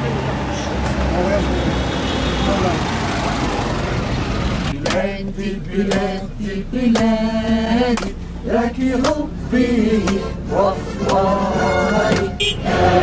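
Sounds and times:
street traffic: 0.0 - 13.0
men singing together: 4.7 - 13.0
hand claps: 5.9 - 6.1, 6.9 - 7.1, 7.9 - 8.2, 9.0 - 9.2, 10.0 - 10.2, 11.0 - 11.2, 12.1 - 12.3.

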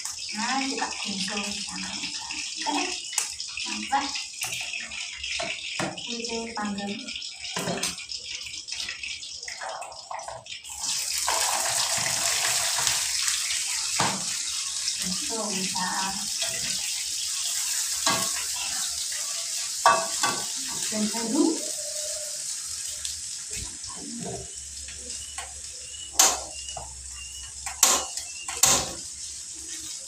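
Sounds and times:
food sizzling in a frying pan: 0.0 - 30.0
metal spoon knocking steel pot: 26.1 - 26.9, 27.6 - 29.0.

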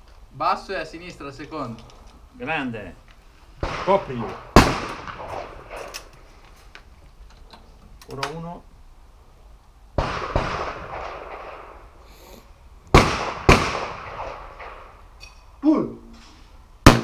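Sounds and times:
shotgun shots with echo: 3.6 - 5.9, 10.0 - 11.8, 12.9 - 14.9
quieter bangs: 3.6 - 6.3, 10.0 - 12.0, 12.9 - 15.5.

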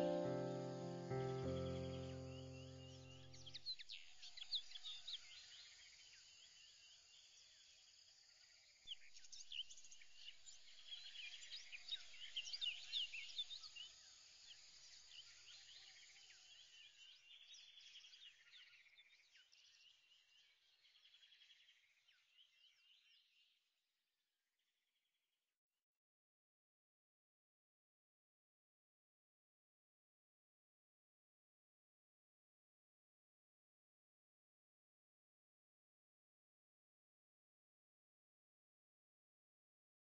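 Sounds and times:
birds chirping: 0.0 - 4.0.

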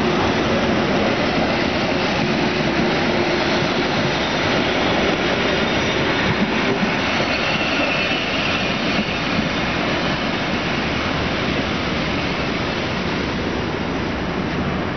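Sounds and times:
passenger train passing: 0.0 - 14.9
faint high squeal: 4.6 - 10.4.

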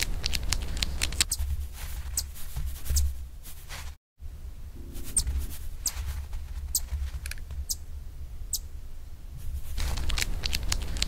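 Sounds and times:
steady low hum: 3.1 - 11.0
chipmunk chip calls: 7.6 - 7.9, 8.5 - 8.7.

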